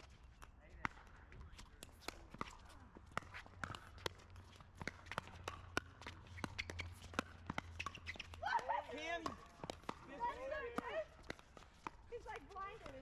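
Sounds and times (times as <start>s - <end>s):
paddles striking pickleballs: 0.0s - 13.0s
shoes on hard court: 0.0s - 13.0s.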